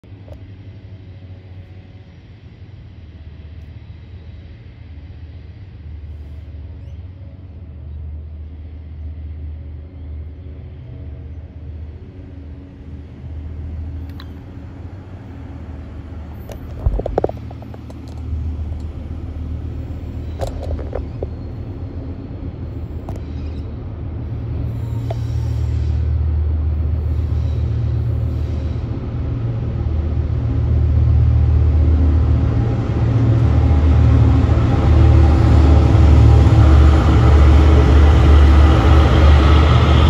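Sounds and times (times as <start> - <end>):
diesel locomotives rumbling: 0.0 - 40.0.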